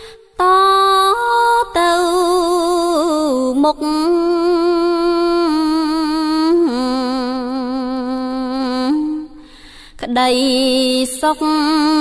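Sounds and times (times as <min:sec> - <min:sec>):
person chanting: 0:10.0 - 0:12.0.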